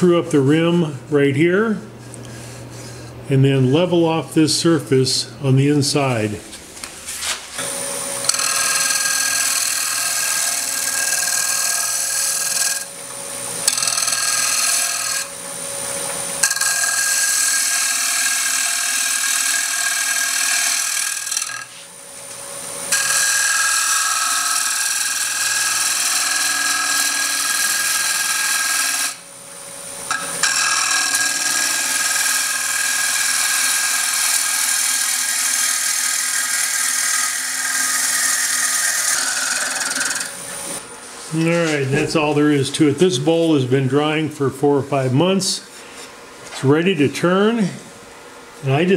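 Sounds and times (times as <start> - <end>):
lathe gouge scraping wood: 8.3 - 12.9, 13.6 - 15.3, 16.4 - 21.8, 22.9 - 29.2, 30.1 - 40.8.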